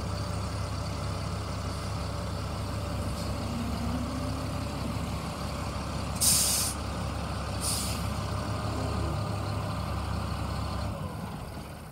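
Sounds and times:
truck engine idling: 0.0 - 11.9
air brake hiss: 6.2 - 6.8, 7.6 - 8.1.

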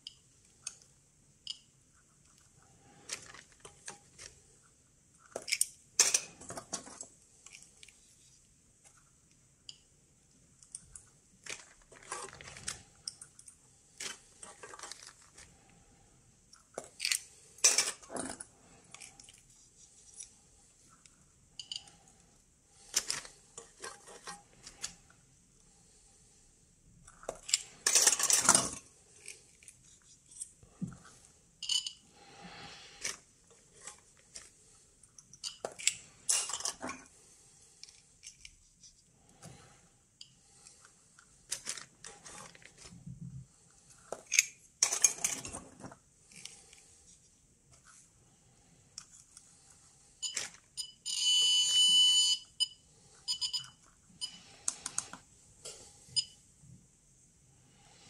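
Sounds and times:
plastic rustling: 11.4 - 13.1, 13.9 - 15.7
small metal parts clinking: 16.6 - 19.4, 21.6 - 22.0, 27.1 - 30.5, 31.6 - 32.0, 35.3 - 36.8, 44.0 - 45.6.

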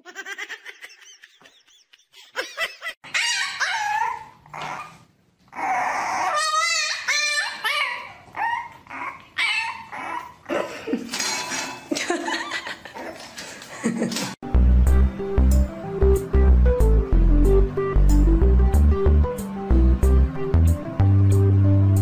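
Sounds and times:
puppy yapping and howling: 3.1 - 10.4.

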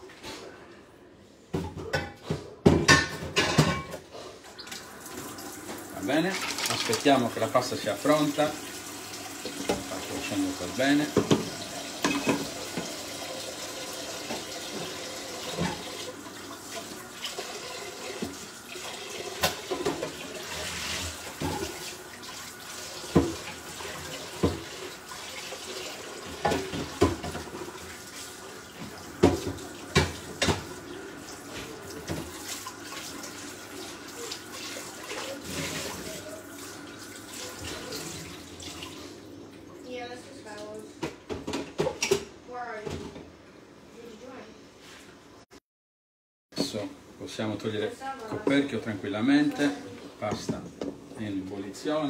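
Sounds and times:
water boiling in a pot: 4.5 - 40.8.

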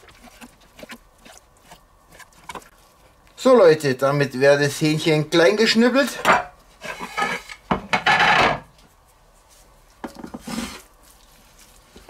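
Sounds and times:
wood scraping on wood: 0.0 - 2.7, 6.8 - 7.6, 10.1 - 10.9
handling raw chicken in metal bowl: 0.0 - 12.0.

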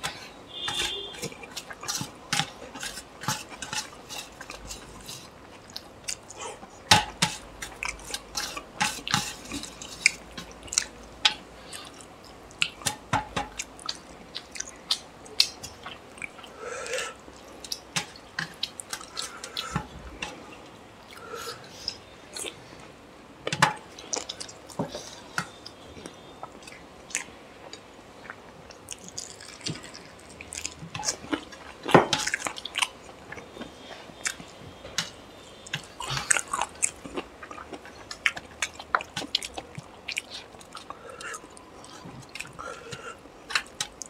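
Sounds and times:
wet chewing: 24.1 - 44.0.

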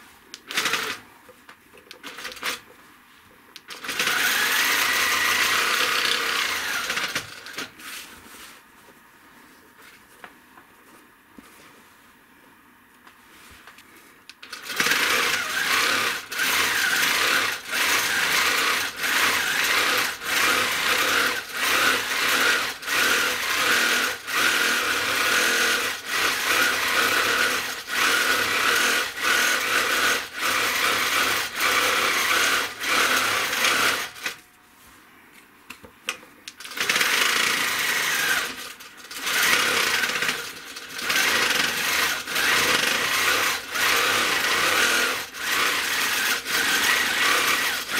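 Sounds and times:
quilting machine stitching: 0.4 - 1.0, 3.7 - 7.7, 14.4 - 34.4, 36.6 - 47.9.

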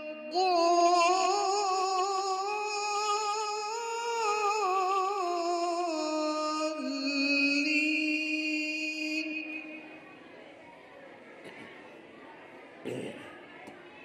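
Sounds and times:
person chanting a long melodic vowel: 0.0 - 9.9.

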